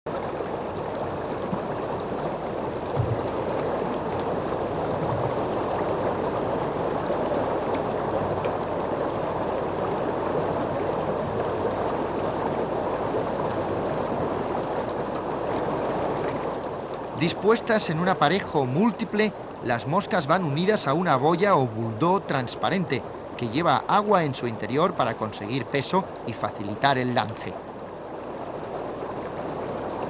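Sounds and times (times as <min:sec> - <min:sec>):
river water running: 0:00.1 - 0:30.0
low thump: 0:02.9 - 0:03.3.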